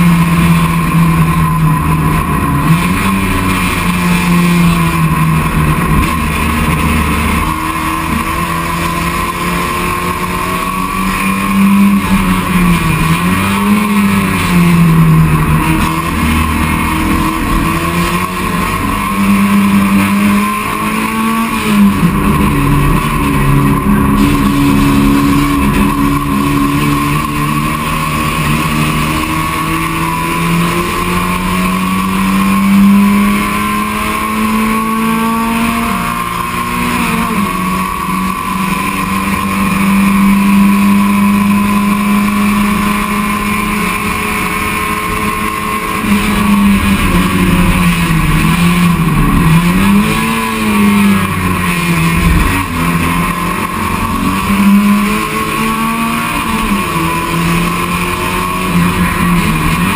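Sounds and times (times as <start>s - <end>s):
race car engine running hard: 0.0s - 59.9s.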